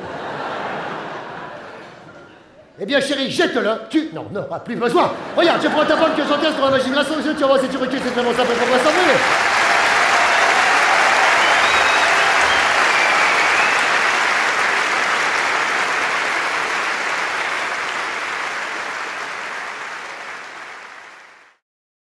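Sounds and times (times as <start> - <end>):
audience applause: 5.6 - 21.6.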